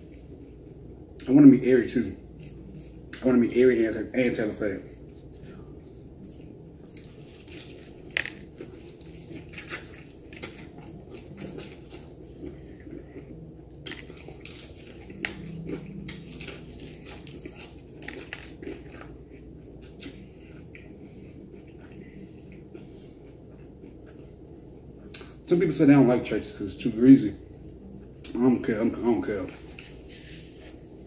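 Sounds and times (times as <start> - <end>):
chewing: 4.9 - 25.4
crunching fried chicken: 6.8 - 21.0.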